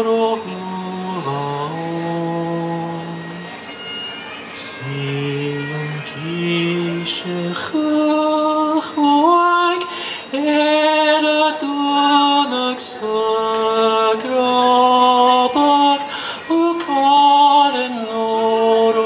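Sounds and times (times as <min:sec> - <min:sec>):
man singing unaccompanied: 0:00.0 - 0:03.7, 0:04.5 - 0:19.0.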